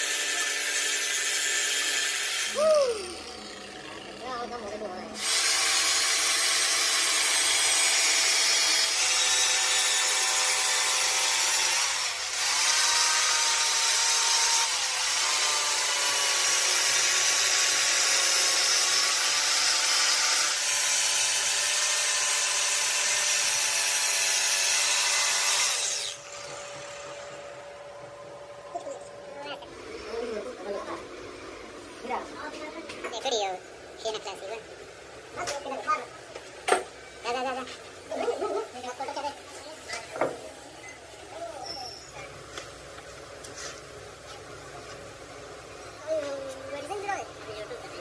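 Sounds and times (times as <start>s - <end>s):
power tool grinding metal: 0.0s - 4.3s, 5.2s - 27.6s.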